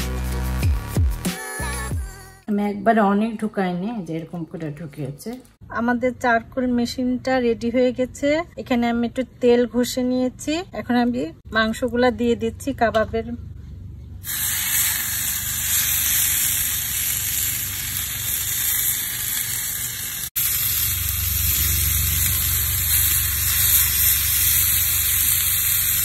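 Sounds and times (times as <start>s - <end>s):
meat sizzling on a grill: 14.3s - 26.0s.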